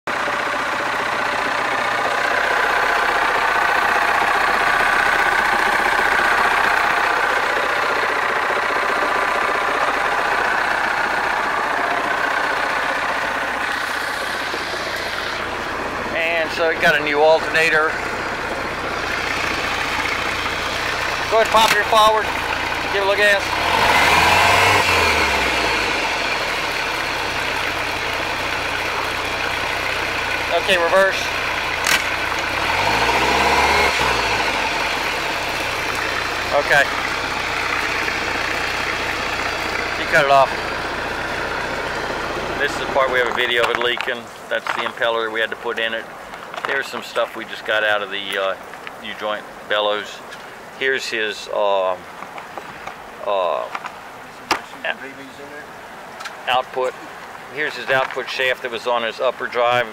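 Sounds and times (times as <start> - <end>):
boat engine idling: 0.0 - 59.9.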